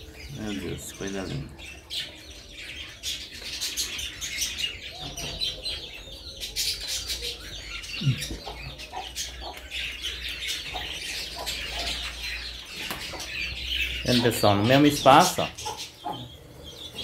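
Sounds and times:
small birds chirping: 0.0s - 17.0s
hen clucking: 4.4s - 17.0s.

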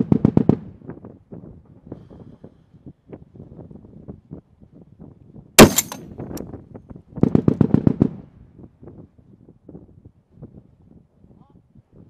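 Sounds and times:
rifle shot: 5.6s - 6.0s.

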